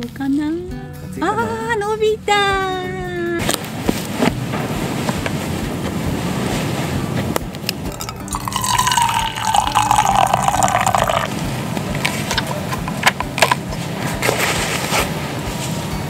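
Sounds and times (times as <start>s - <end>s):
coffee pouring into a mug: 7.9s - 11.3s.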